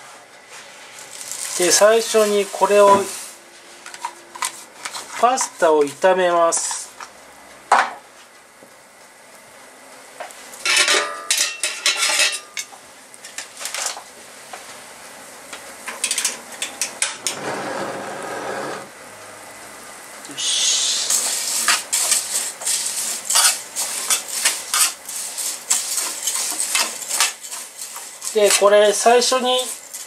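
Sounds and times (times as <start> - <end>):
oil hissing: 20.2 - 28.5
metal tongs scraping a pan: 21.1 - 30.0.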